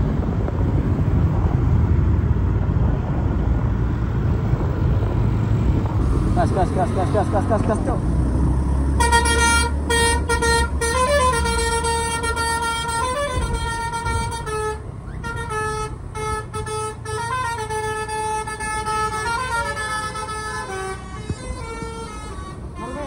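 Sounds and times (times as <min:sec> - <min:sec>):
low traffic rumble: 0:00.0 - 0:23.0
bus horn playing melody: 0:08.9 - 0:23.0.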